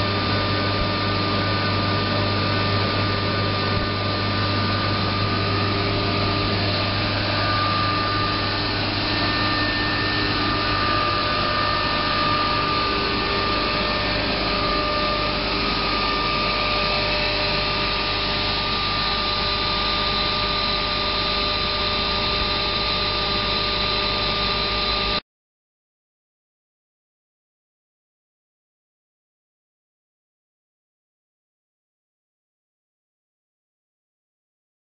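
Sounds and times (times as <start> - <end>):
machine drone with whining tones: 0.0 - 25.2.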